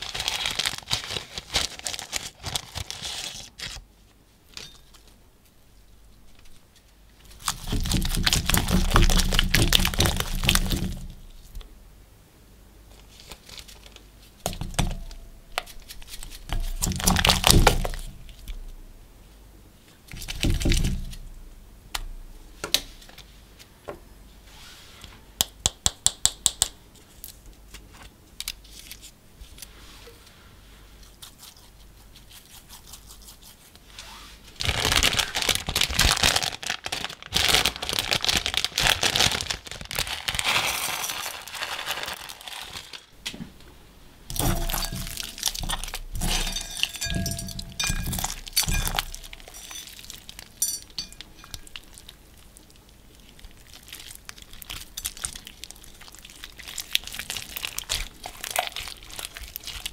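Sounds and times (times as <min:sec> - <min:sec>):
plastic packet crinkling: 0:00.0 - 0:03.8, 0:07.3 - 0:11.2, 0:13.0 - 0:18.6, 0:34.6 - 0:43.2, 0:44.3 - 0:59.9
slime crackling by hand: 0:07.2 - 0:11.6, 0:34.6 - 0:43.2, 0:44.3 - 0:59.9.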